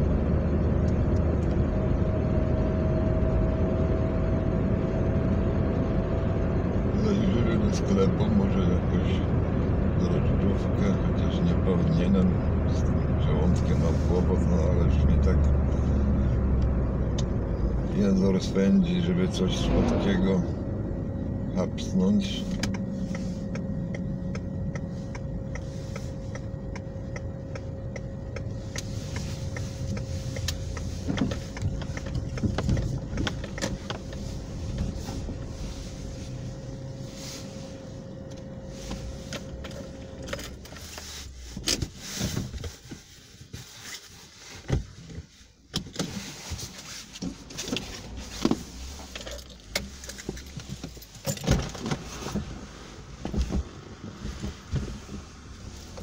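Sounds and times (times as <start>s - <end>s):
car engine idling: 0.0s - 42.3s
clicks and knocks inside car: 22.4s - 36.8s, 44.6s - 56.0s.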